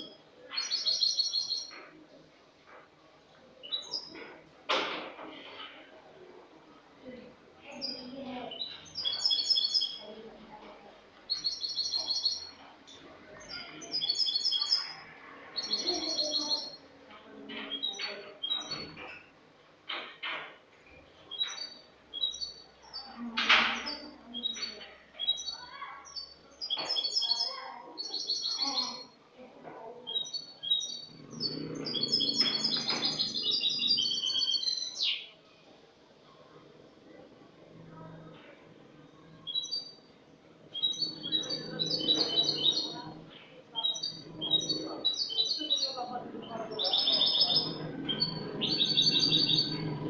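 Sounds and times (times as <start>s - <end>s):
goldfinch singing: 0.0s - 1.8s, 7.8s - 10.1s, 11.3s - 15.0s, 15.6s - 16.8s, 23.8s - 29.2s, 30.1s - 35.3s, 40.7s - 50.0s
bird chirps: 0.0s - 2.0s, 7.8s - 10.2s, 11.3s - 16.9s, 21.2s - 29.2s, 30.1s - 35.4s, 39.2s - 50.0s
goldfinch twittering trills: 30.1s - 35.3s, 43.8s - 50.0s.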